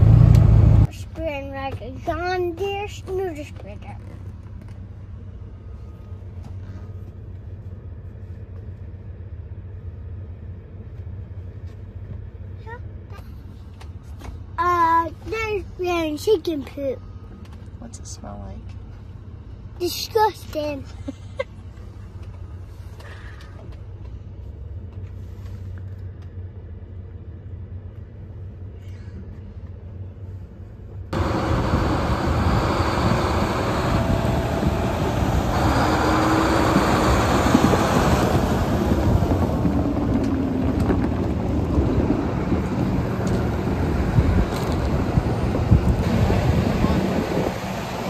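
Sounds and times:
tractor running: 0:00.0 - 0:12.4, 0:29.1 - 0:48.0
low hum inside vehicle cab: 0:00.0 - 0:48.0.

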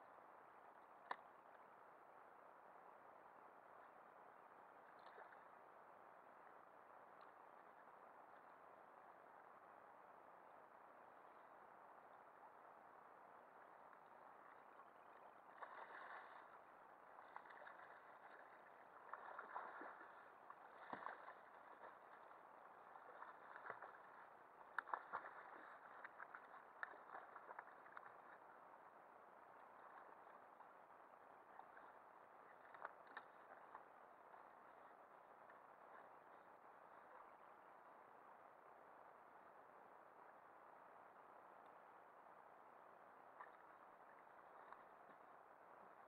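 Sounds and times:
water sloshing against kayak: 0:14.0 - 0:37.4.

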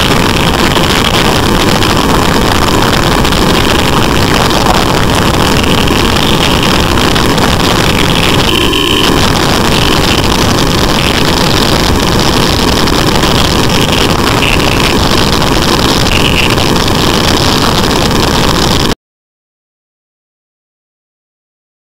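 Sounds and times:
motorbike engines: 0:00.0 - 0:16.6
busy street traffic: 0:00.0 - 0:16.9
short high-pitched sounds: 0:08.0 - 0:10.3.

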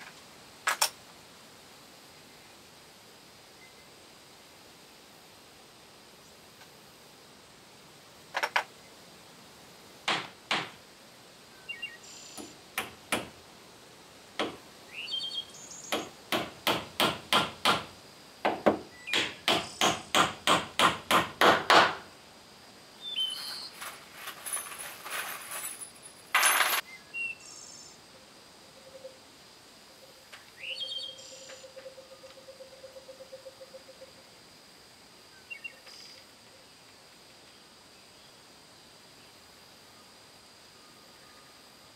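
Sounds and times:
bird chirps: 0:11.6 - 0:12.5, 0:14.9 - 0:16.1, 0:23.0 - 0:23.8, 0:26.9 - 0:28.0, 0:30.5 - 0:34.0
hammer tapping wooden blocks: 0:15.9 - 0:22.0
scrape: 0:23.2 - 0:26.0.

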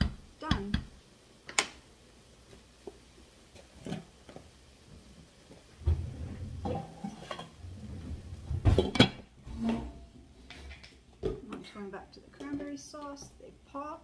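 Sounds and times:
low rumble: 0:05.8 - 0:06.7
cookware clanking: 0:06.0 - 0:10.0.

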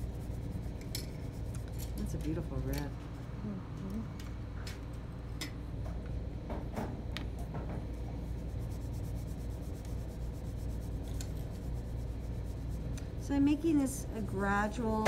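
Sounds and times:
pastel scrubbing on paper: 0:00.0 - 0:01.8, 0:08.2 - 0:13.6.

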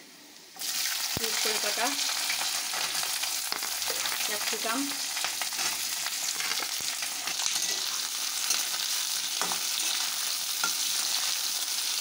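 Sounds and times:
vegetables sizzling in oil: 0:00.0 - 0:12.0
metal spatula scraping a pan: 0:05.2 - 0:11.4.

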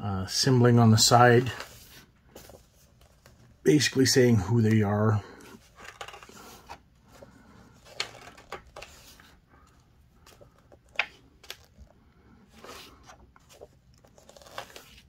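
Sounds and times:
book pages turning: 0:01.2 - 0:04.0, 0:05.4 - 0:15.0.

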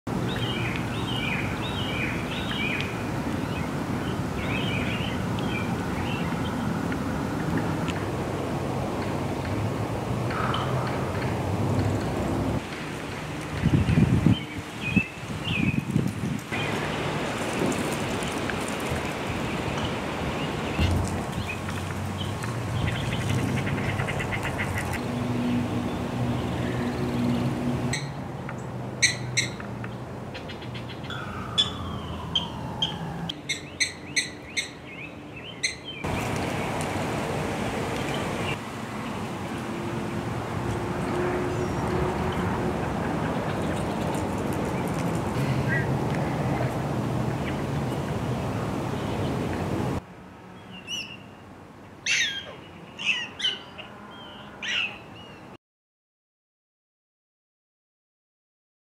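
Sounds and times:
steady rush of outdoor noise: 0:00.1 - 0:55.6.

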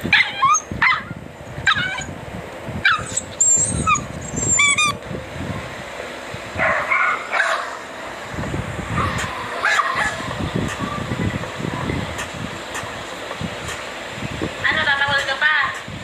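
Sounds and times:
dogs yipping and barking: 0:00.0 - 0:02.2, 0:02.8 - 0:05.0, 0:06.6 - 0:07.9, 0:08.9 - 0:10.8
dog whining: 0:00.1 - 0:02.1, 0:02.8 - 0:05.0.

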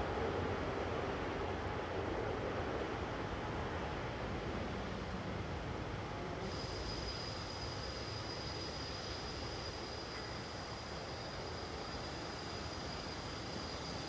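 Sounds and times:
jet engines at low thrust: 0:00.0 - 0:14.0.

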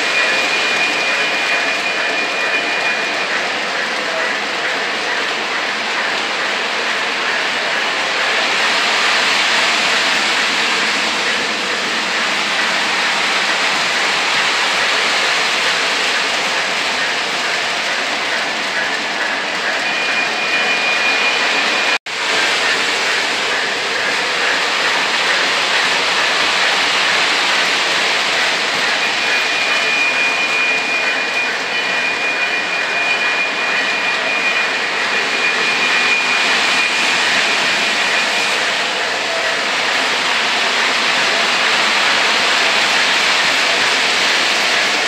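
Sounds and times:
model train wheels and motors whirring: 0:00.0 - 0:45.0
thin high whine: 0:00.0 - 0:45.0.

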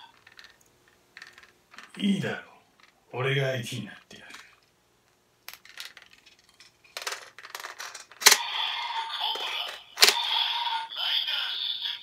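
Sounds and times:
toy electronic sound effect: 0:08.2 - 0:11.0.

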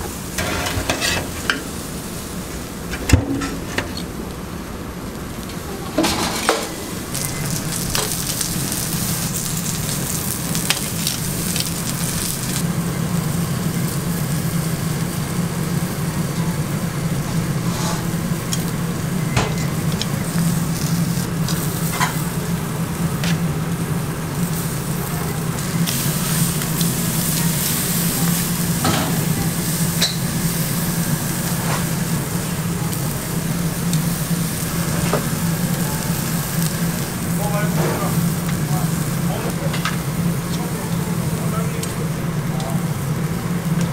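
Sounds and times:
food sizzling on a grill: 0:00.0 - 0:02.9, 0:04.5 - 0:43.9
steady low hum: 0:00.0 - 0:43.9
sharp crackles and clicks: 0:07.0 - 0:12.7, 0:18.4 - 0:22.3, 0:24.4 - 0:40.7.

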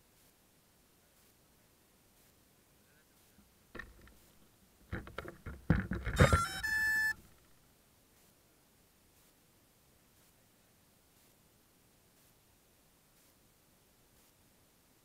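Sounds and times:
knocks and clicks of handling: 0:03.8 - 0:04.2, 0:04.9 - 0:07.5
two-tone electronic beep: 0:06.2 - 0:07.3.

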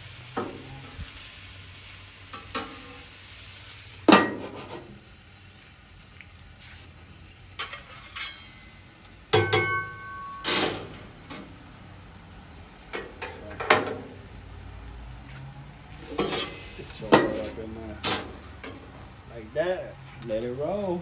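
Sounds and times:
food sizzling: 0:00.0 - 0:21.0
metal spatula scraping griddle: 0:02.3 - 0:03.1, 0:04.1 - 0:05.0, 0:06.6 - 0:08.8, 0:09.4 - 0:11.4, 0:16.0 - 0:18.9.

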